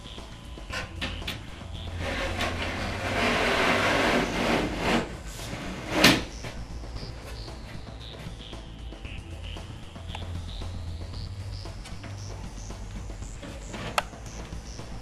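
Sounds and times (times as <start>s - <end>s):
wooden panel scraping: 1.8s - 8.4s, 13.2s - 14.6s.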